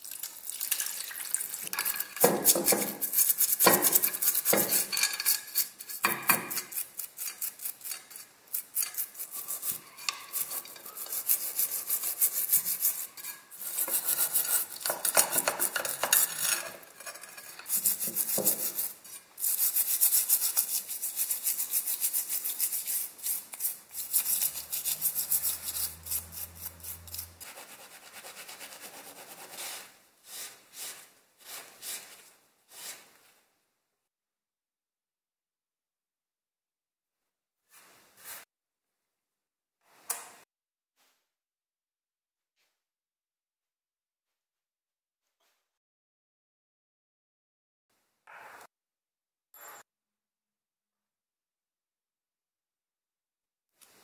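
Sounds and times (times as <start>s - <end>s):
stiff brush scrubbing metal parts: 1.6s - 32.2s.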